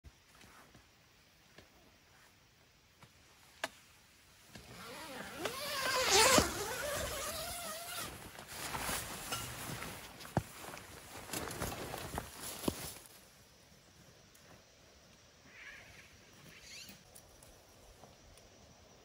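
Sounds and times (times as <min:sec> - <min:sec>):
tent zipper rasping: 0:04.6 - 0:09.4
tent fabric rustling: 0:04.6 - 0:13.2.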